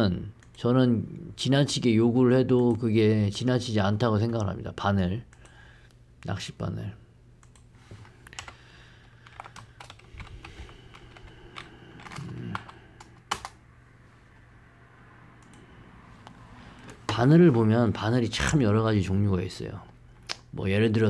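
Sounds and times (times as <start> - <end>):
computer keyboard typing: 8.3 - 13.6.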